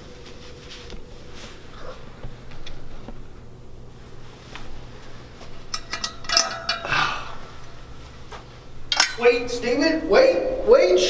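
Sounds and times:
faint clicks and rustles: 0.0s - 6.9s
steady low hum: 0.0s - 11.0s.

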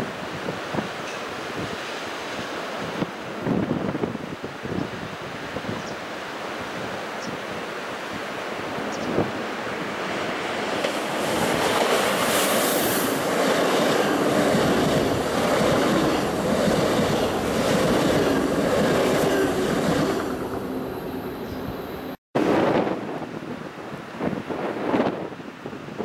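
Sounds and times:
train wheels rushing on rails: 9.3s - 22.1s
rhythmic clatter over rail joints: 10.0s - 20.7s.

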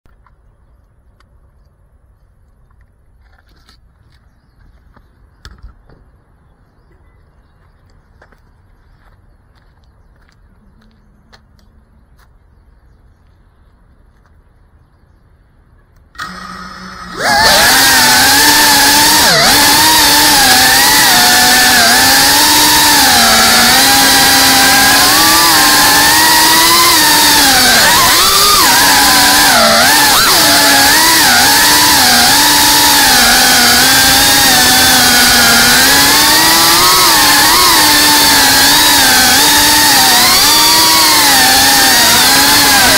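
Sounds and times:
light footsteps: 7.5s - 12.6s
drone propellers buzzing: 16.2s - 42.9s.

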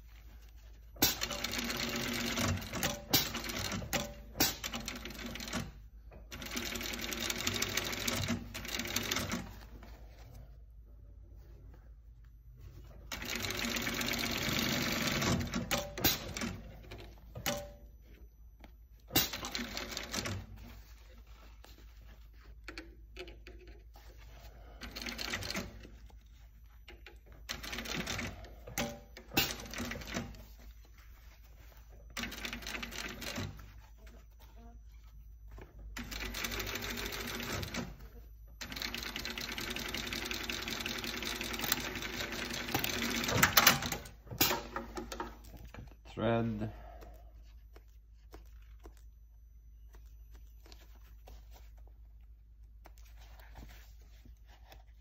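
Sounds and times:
sewing machine stitching: 13.1s - 17.7s.

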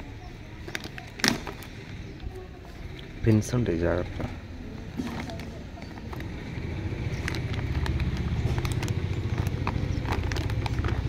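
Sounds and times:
plastic bag crinkling and clicking: 5.0s - 11.0s.

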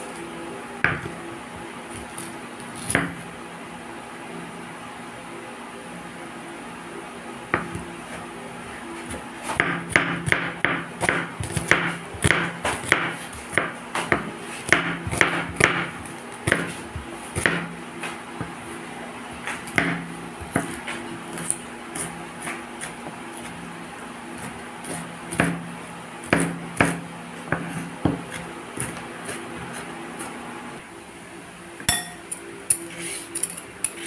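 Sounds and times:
knife chopping on wooden board: 0.8s - 1.2s, 2.0s - 3.2s, 7.5s - 7.9s, 9.1s - 18.6s, 19.3s - 23.6s, 24.4s - 30.3s.

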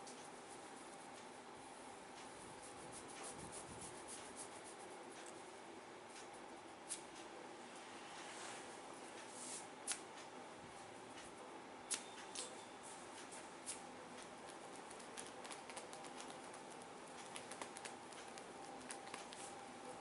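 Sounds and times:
fingers rubbing through hair: 2.2s - 5.4s, 13.2s - 20.0s.

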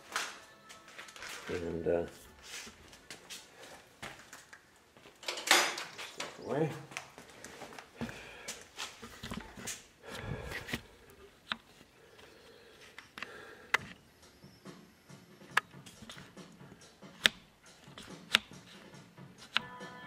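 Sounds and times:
rustling and shuffling handling noise: 0.0s - 13.2s.

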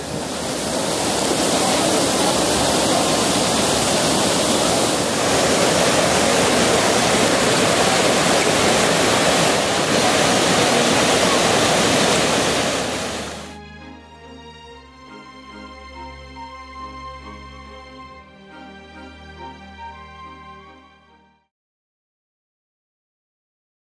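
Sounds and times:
fountain water splashing: 0.0s - 13.6s
soft music with held notes: 13.5s - 21.5s.

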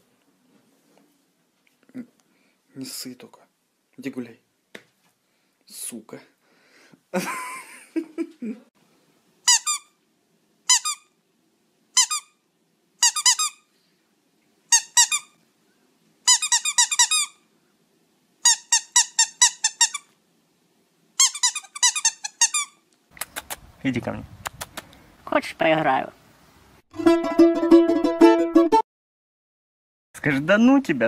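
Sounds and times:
squeaky toy squeaking: 9.5s - 10.0s, 10.7s - 11.1s, 12.0s - 12.4s, 13.0s - 13.7s, 14.7s - 15.4s, 16.3s - 17.4s, 18.4s - 20.1s, 21.2s - 22.8s.

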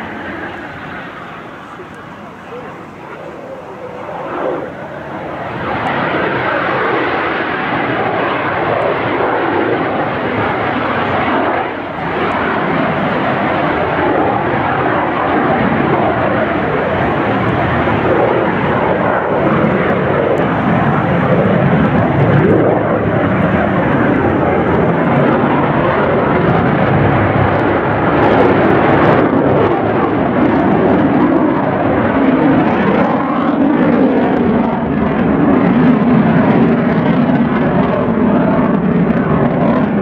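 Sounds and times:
jet engine roar: 0.0s - 40.0s.

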